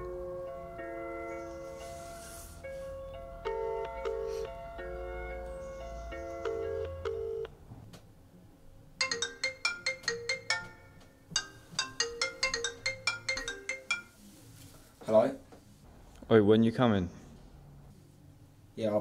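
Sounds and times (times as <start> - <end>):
held musical chord: 0.0 - 7.4, 9.0 - 14.2
marimba phone ringtone: 3.1 - 5.5, 6.1 - 7.5, 9.0 - 14.2.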